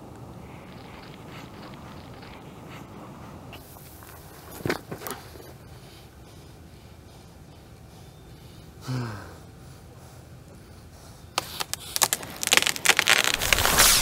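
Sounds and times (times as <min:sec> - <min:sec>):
crackling and scraping noises: 0:00.0 - 0:05.8, 0:11.4 - 0:14.0.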